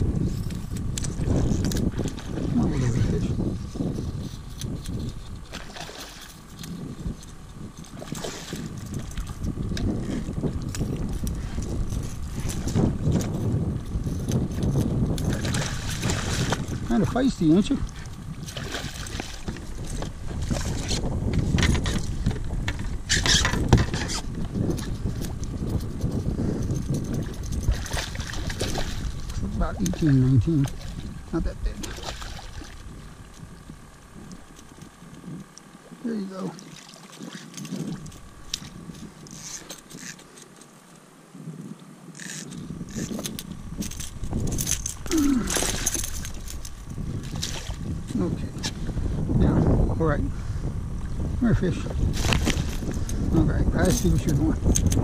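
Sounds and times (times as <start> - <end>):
wind rumble on microphone: 0.0 - 55.0
fishing gear scraping and clicking: 0.2 - 31.1, 34.2 - 35.7, 37.1 - 41.1, 42.1 - 48.8, 52.0 - 55.0
fish splashing in water: 36.6 - 37.6
fishing reel clicks: 42.2 - 47.0, 53.8 - 55.0.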